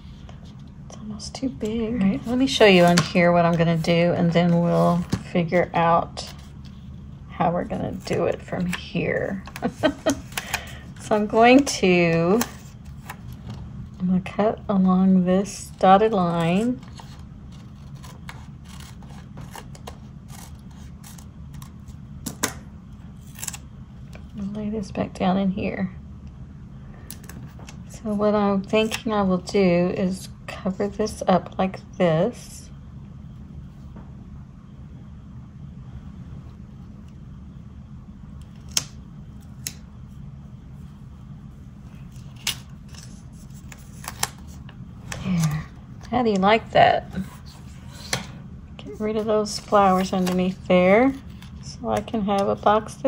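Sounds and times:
steady low hum: 0:00.0 - 0:53.0
paper rustling: 0:41.9 - 0:45.8, 0:49.2 - 0:51.7.

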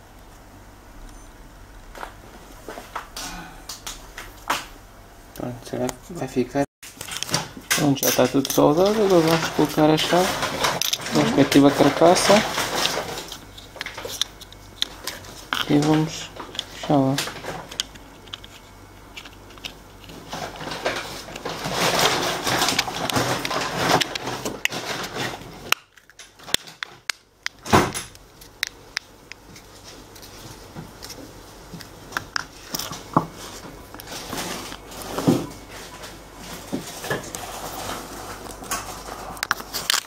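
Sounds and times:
plastic scraping and rubbing: 0:07.0 - 0:27.0, 0:32.4 - 0:40.0.

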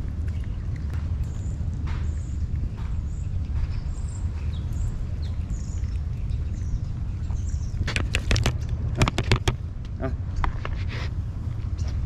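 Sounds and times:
cat chewing wet food: 0:00.0 - 0:09.9
small birds chirping: 0:00.0 - 0:12.0
steady low rumble: 0:00.0 - 0:12.0.

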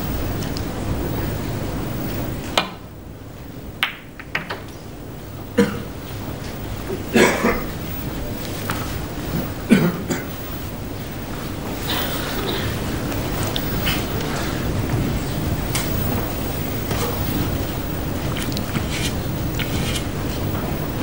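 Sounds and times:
audience coughing: 0:05.6 - 0:06.0, 0:07.0 - 0:07.8, 0:09.3 - 0:10.4, 0:11.8 - 0:12.9.

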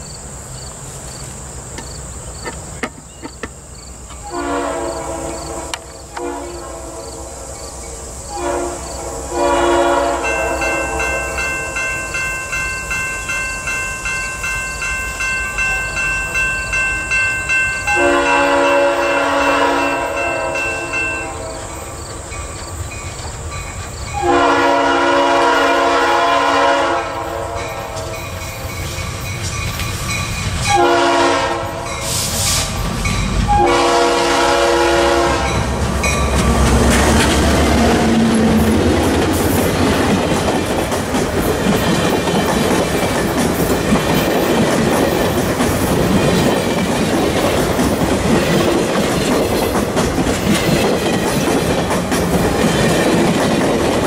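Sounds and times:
locomotive air horn blasts: 0:04.2 - 0:07.6, 0:08.3 - 0:11.7, 0:17.9 - 0:21.9, 0:24.2 - 0:28.4, 0:30.7 - 0:32.8, 0:33.5 - 0:35.7
train wheels clacking on rails: 0:27.5 - 0:34.3, 0:35.3 - 0:54.0.

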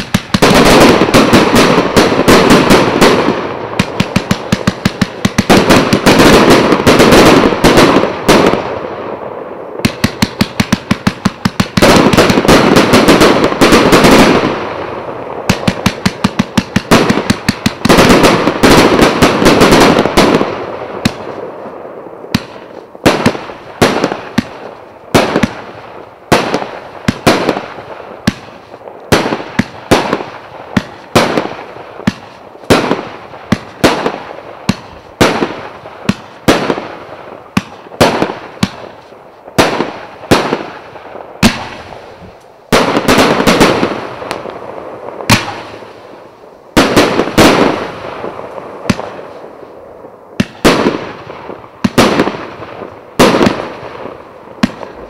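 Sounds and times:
fireworks launching and bursting: 0:00.0 - 0:55.0.

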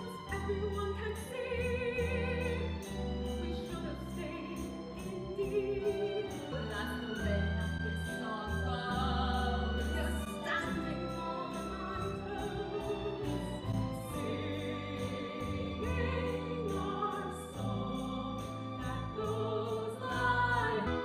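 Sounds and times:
operatic singing with vibrato: 0:00.0 - 0:21.0
pit orchestra playing: 0:00.0 - 0:21.0.

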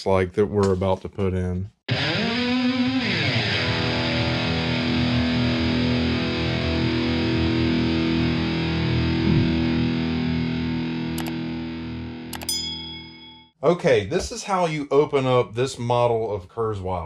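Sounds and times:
distorted electric guitar chord: 0:01.9 - 0:12.3.

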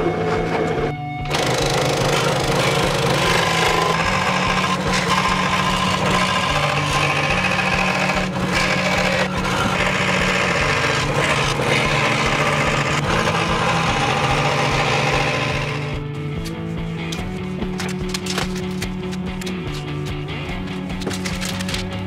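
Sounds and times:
scroll saw cutting: 0:00.0 - 0:16.0.

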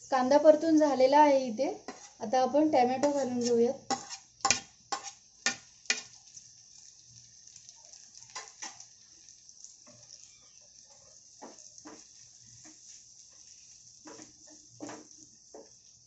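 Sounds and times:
vegetables sizzling in oil: 0:00.0 - 0:16.0
wooden spatula scraping pan: 0:01.8 - 0:02.2, 0:03.0 - 0:06.1, 0:11.4 - 0:15.9.

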